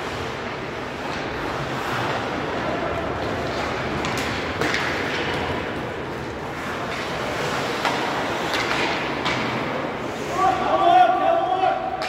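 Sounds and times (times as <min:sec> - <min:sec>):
skates on ice: 0:00.0 - 0:12.0
sharp clacks of sticks or puck: 0:01.0 - 0:02.4, 0:03.2 - 0:10.3.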